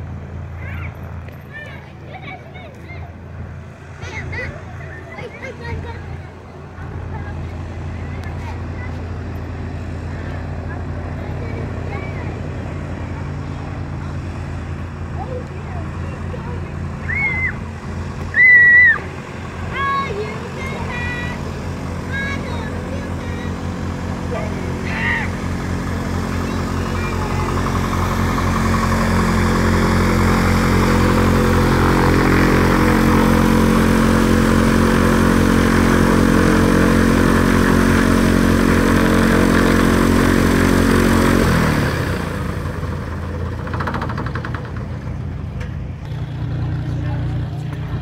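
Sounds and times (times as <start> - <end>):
light aircraft engine and propeller: 0.0 - 48.0.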